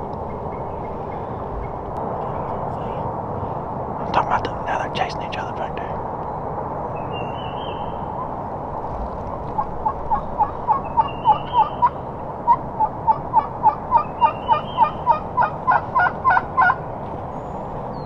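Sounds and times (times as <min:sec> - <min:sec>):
wild turkey yelping: 0:09.3 - 0:16.8.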